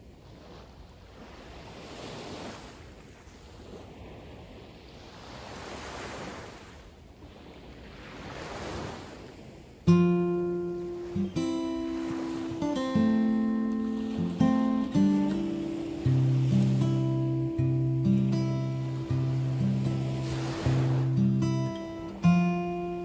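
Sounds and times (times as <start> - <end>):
small waves breaking on beach: 0.0 - 23.0
acoustic guitar music: 9.8 - 23.0.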